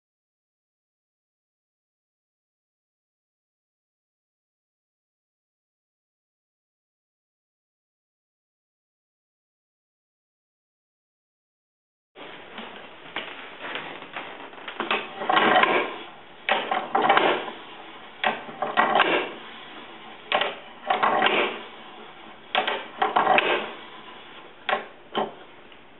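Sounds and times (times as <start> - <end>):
wooden mechanism clacking and rattling: 14.2 - 17.6, 18.2 - 19.4, 20.3 - 21.6, 22.5 - 23.8.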